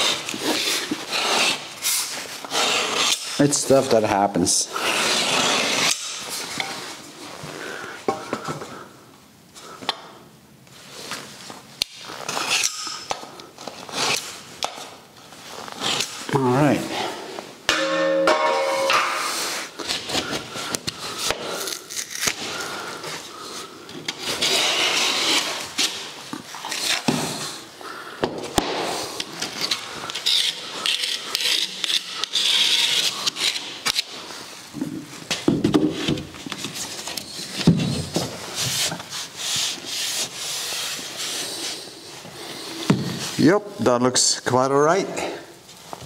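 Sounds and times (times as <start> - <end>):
drywall board being cut: 2.4 - 3.4, 4.7 - 6.2, 24.2 - 26.1.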